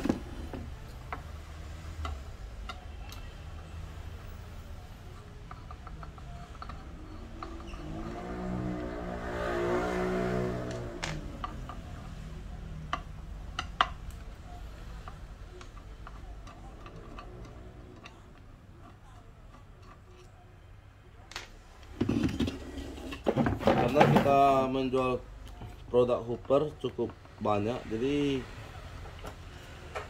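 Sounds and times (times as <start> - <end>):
screwdriver clicking on metal: 15.0 - 20.3.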